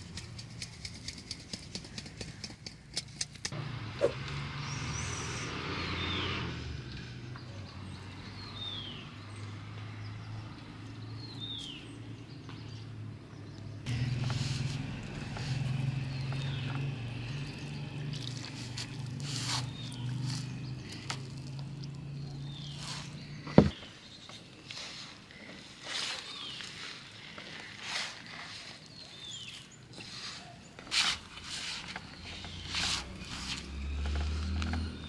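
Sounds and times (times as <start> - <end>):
hands mixing dough in metal bowl: 14.3 - 23.2.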